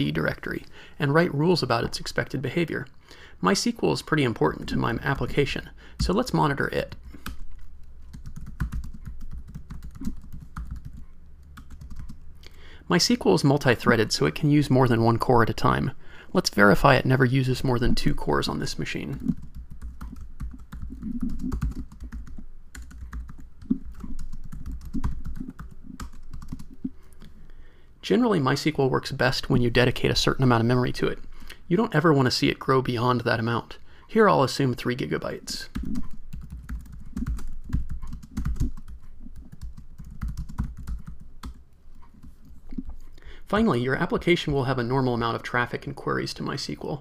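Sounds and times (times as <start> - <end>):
computer keyboard typing: 8.1 - 12.2, 19.1 - 26.9, 35.7 - 42.9.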